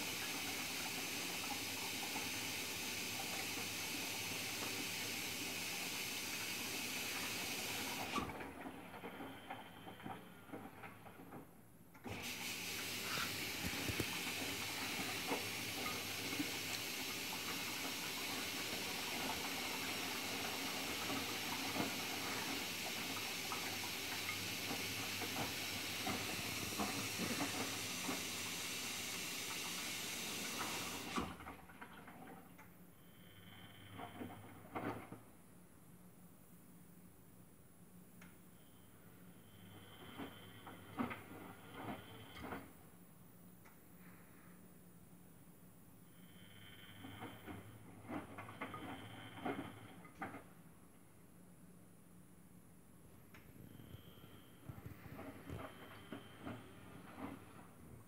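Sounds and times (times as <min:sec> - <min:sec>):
washing machine drum tumbling laundry: 0:12.1 - 0:32.4.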